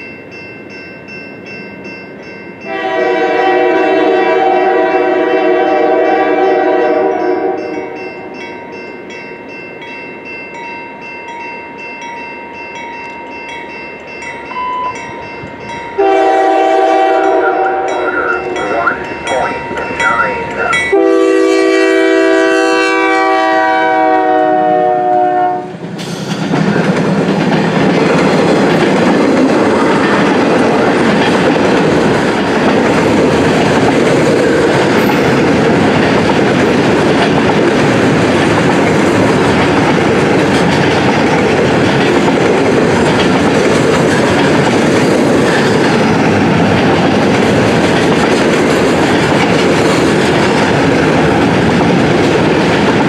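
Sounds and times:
diesel locomotives passing: 0.0 - 53.0
train wheels on rails: 0.0 - 53.0
locomotive air horn chord: 2.7 - 7.8, 16.0 - 18.9, 20.9 - 25.7.

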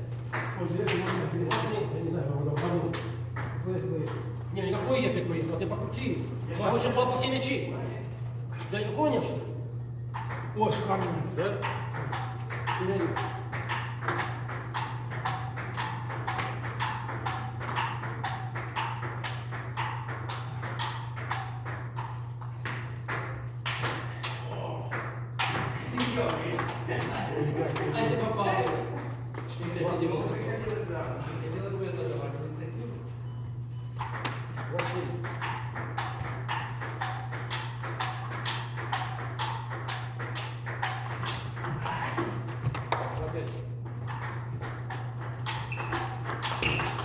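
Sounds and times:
steady low hum: 0.0 - 47.0
table tennis ball clicks: 10.1 - 26.9, 34.0 - 43.2, 43.9 - 47.0.

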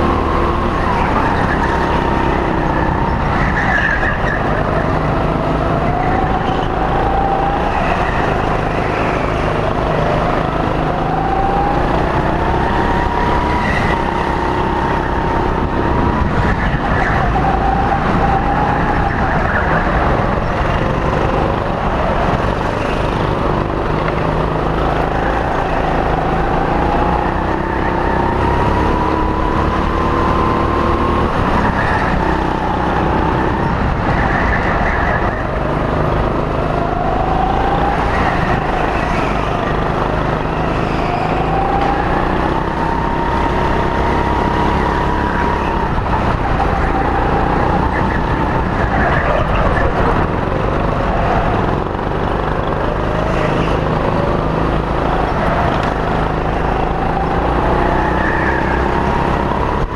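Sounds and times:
go-kart motor revving: 0.0 - 59.9.

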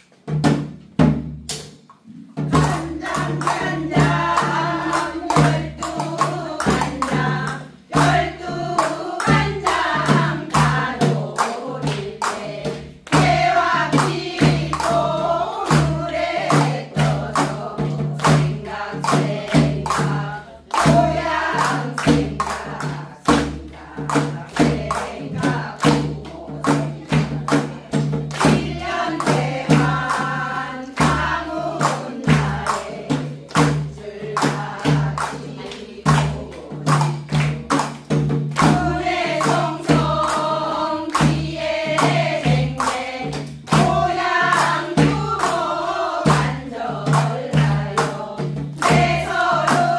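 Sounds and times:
struck percussion beat: 0.1 - 49.9
women singing in chorus: 2.1 - 49.9.

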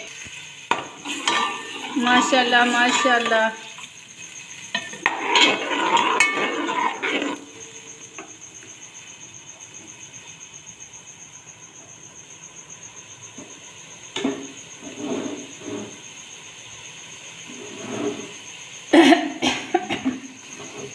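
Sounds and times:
frying sizzle: 0.0 - 20.9
ladle scraping steel pot: 0.7 - 3.9, 4.7 - 8.0, 17.5 - 18.4.

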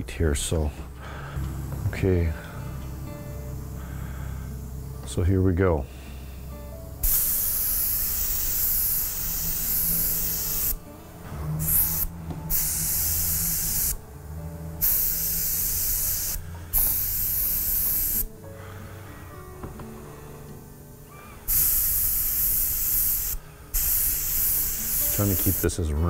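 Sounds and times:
airbrush spraying hiss: 7.0 - 10.9, 11.6 - 14.0, 14.8 - 18.3, 21.4 - 25.8.

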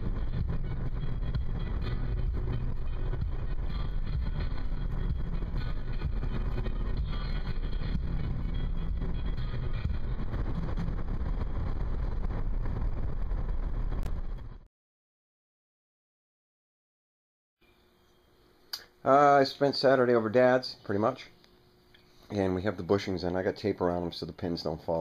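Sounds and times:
car driving rumble: 0.0 - 14.6.

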